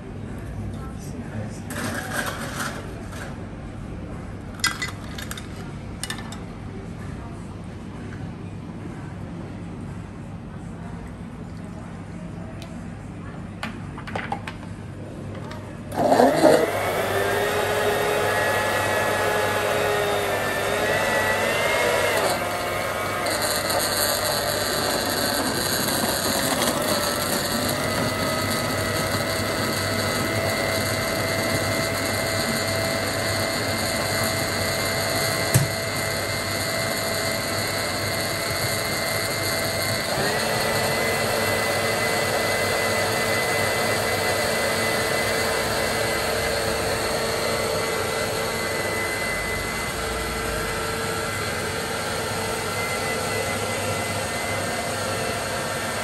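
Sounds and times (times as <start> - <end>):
blender blending ice: 1.7 - 3.2, 15.9 - 56.0.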